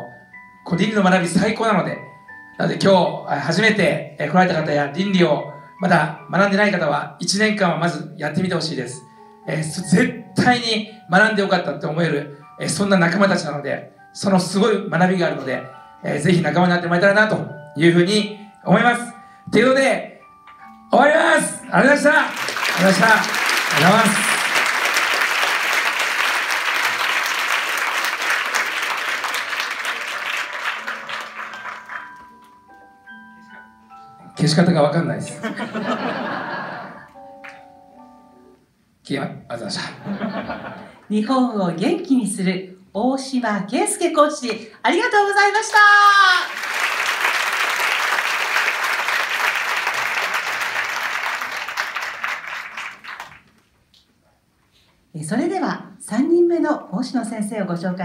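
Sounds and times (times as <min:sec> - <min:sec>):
crowd applauding: 0:22.2 - 0:32.5, 0:46.2 - 0:53.6.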